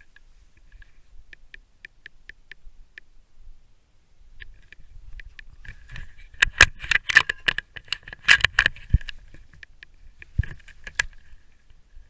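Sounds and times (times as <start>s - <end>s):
rifle handling clicks and rattles: 4.4s - 11.8s.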